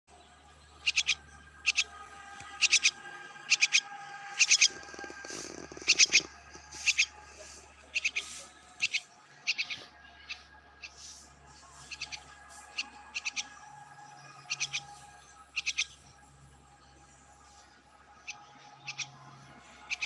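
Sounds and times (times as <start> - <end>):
young bird chirping: 0.8 - 3.8, 4.4 - 11.2, 11.8 - 13.6, 14.4 - 16.1, 18.2 - 19.2.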